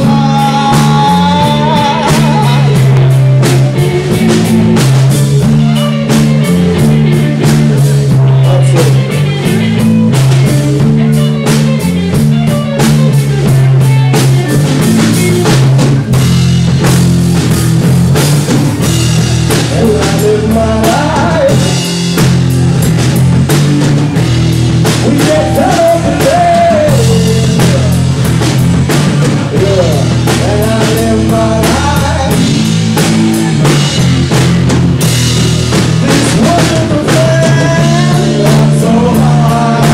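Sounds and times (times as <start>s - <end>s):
drum and cymbal hits: 0.0s - 39.9s
rock band playing live: 0.0s - 39.9s.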